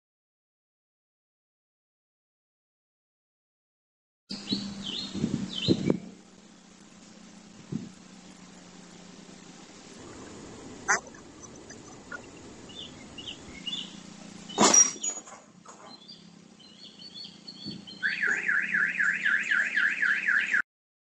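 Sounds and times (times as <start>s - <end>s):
birds chirping faintly: 4.3s - 20.6s
car alarm wailing: 18.0s - 20.6s.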